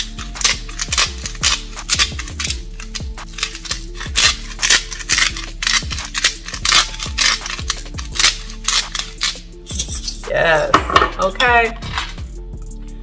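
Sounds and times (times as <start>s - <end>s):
salt grinder crunching: 0.0s - 10.2s.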